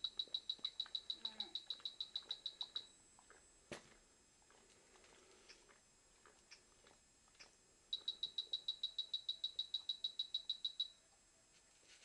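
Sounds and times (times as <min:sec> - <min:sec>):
rapid high beeps from speaker: 0:00.0 - 0:03.0, 0:07.9 - 0:11.0.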